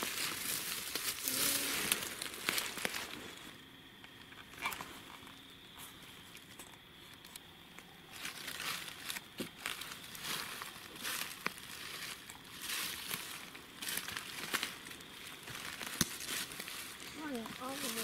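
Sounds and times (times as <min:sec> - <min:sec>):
footsteps crunching dry leaves: 0:00.0 - 0:03.6, 0:08.1 - 0:18.0.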